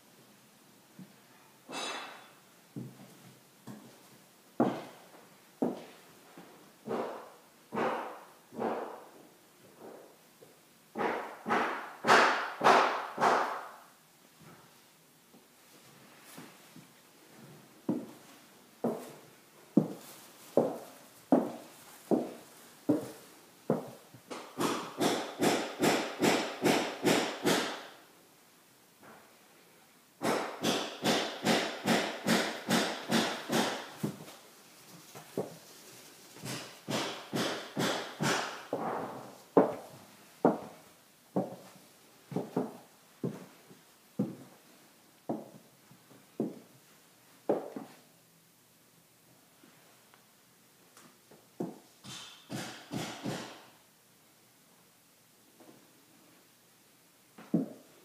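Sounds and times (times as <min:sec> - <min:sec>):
footsteps on wooden floorboards: 0:04.6 - 0:05.0, 0:05.6 - 0:07.2, 0:16.3 - 0:19.2, 0:19.8 - 0:24.0, 0:38.7 - 0:40.8, 0:41.4 - 0:44.5, 0:45.3 - 0:45.6.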